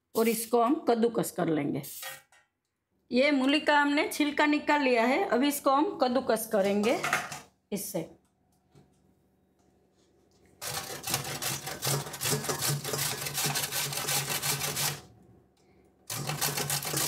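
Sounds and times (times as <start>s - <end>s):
radish grating on metal grater: 10.6s - 15.0s, 16.1s - 17.0s.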